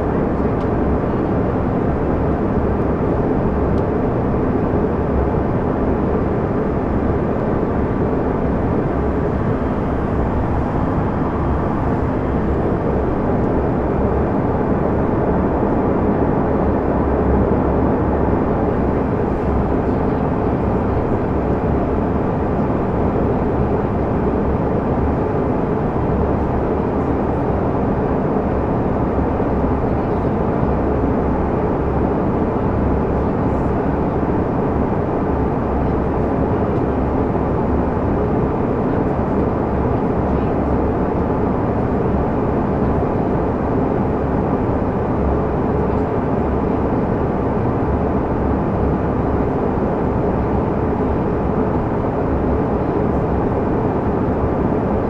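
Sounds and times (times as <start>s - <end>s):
airflow over fuselage: 0.0s - 29.0s
jet engines rushing: 0.0s - 55.0s.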